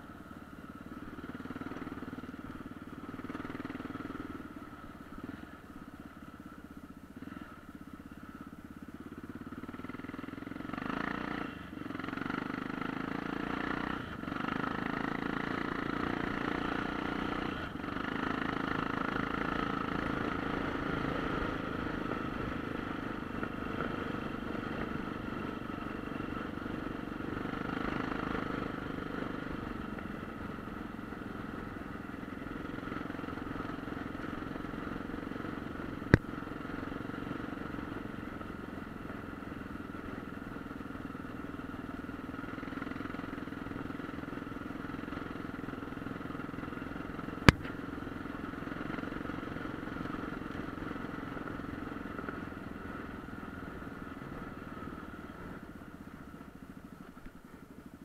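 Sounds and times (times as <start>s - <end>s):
motorcycle engine running: 0.0s - 58.0s.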